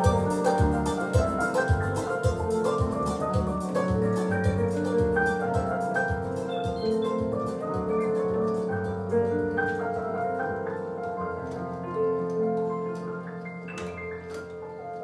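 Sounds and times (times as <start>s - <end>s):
ticking percussion beat: 0.0s - 10.0s
electronic keyboard melody: 0.0s - 15.0s.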